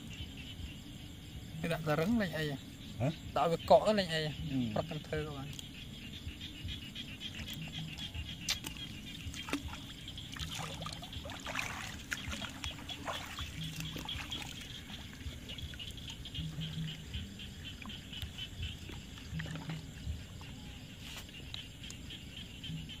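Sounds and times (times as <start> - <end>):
night insects chorus: 0.0 - 23.0
water trickling and splashing: 7.2 - 22.9.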